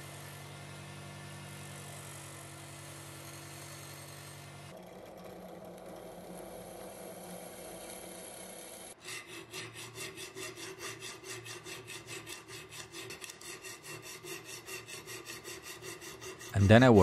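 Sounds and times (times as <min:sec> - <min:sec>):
drill boring through steel: 0:01.5 - 0:04.5
hand file rasping on steel: 0:07.8 - 0:17.0.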